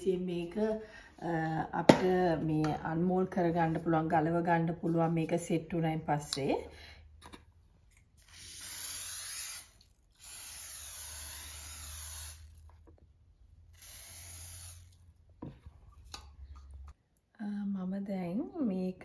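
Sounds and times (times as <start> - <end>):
aerosol spray hissing: 8.4 - 12.5, 13.8 - 15.0.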